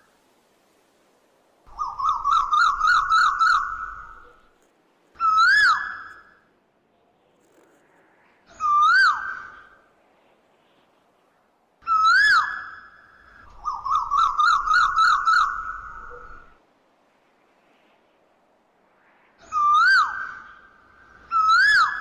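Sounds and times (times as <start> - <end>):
starlings whistling calls: 1.7 - 4.5, 5.2 - 6.3, 8.5 - 9.8, 11.8 - 16.6, 19.4 - 22.0.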